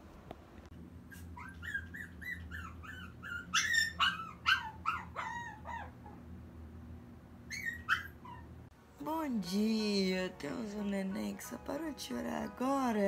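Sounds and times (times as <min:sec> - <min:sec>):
puppy whining and yelping: 0:01.1 - 0:06.2, 0:07.5 - 0:08.6.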